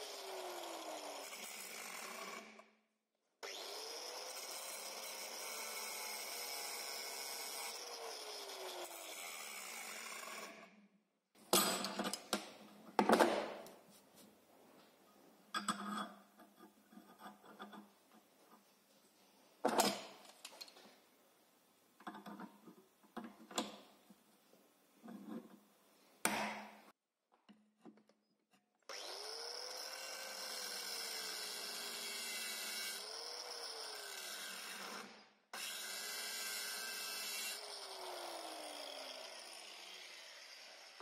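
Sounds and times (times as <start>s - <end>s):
angle grinder grinding steel: 28.9s - 41.0s.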